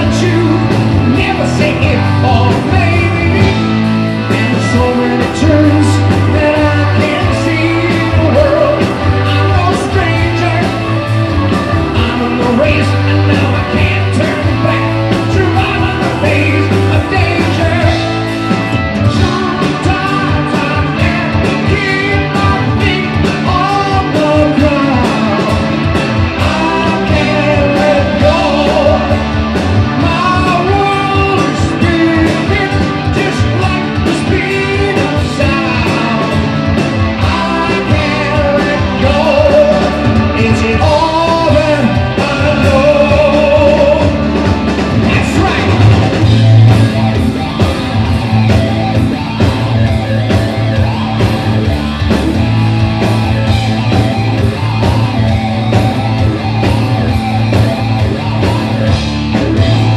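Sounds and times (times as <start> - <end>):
lead vocals: 0.0 - 59.9
rock band playing live: 0.0 - 59.9.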